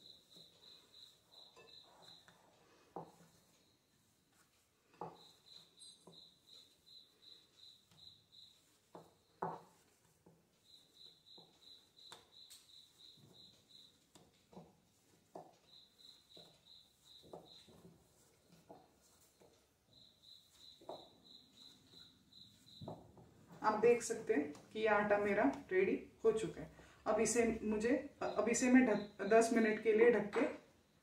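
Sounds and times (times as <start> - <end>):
cricket chirping: 0.0 - 2.2, 5.2 - 8.6, 10.6 - 13.9, 15.7 - 17.7, 19.9 - 23.0
hands kneading dough: 0.0 - 31.0.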